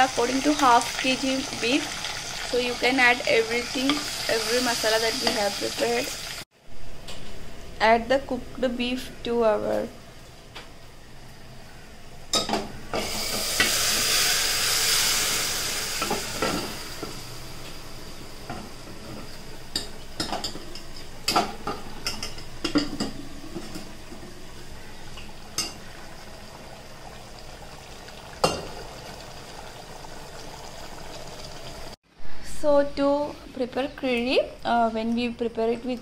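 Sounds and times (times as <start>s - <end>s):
meat sizzling in a pot: 0.0s - 6.5s, 12.4s - 32.0s.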